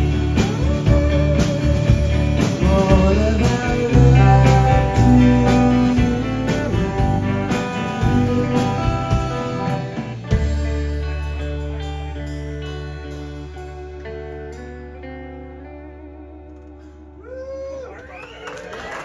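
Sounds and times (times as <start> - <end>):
drums with cymbal hits: 0.0 - 13.2
bass guitar: 0.0 - 19.0
electric guitars: 0.0 - 19.0.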